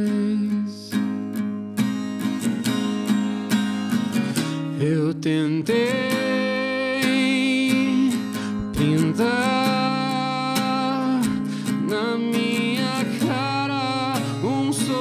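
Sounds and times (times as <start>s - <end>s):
man singing: 0.0s - 1.1s, 4.4s - 15.0s
acoustic guitar strumming: 0.0s - 15.0s.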